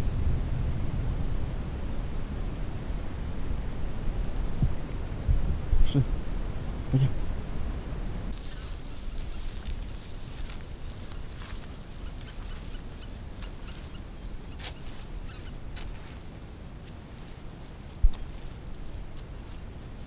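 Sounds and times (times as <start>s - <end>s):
wind rumble on microphone: 0.0s - 20.0s
distant geese honking: 8.4s - 16.4s.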